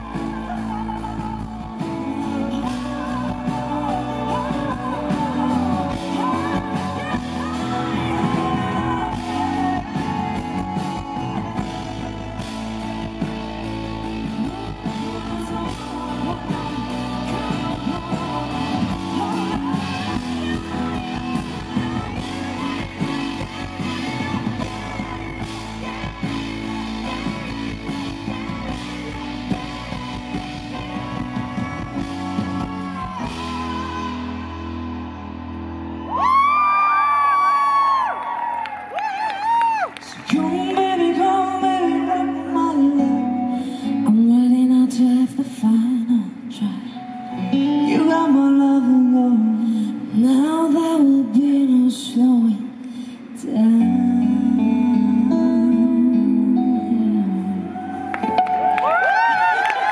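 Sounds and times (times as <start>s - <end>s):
woman singing into microphone: 0.0s - 35.1s, 39.8s - 59.0s
band playing pop-rock: 0.0s - 52.5s, 53.4s - 59.9s
acoustic guitar: 40.2s - 59.1s.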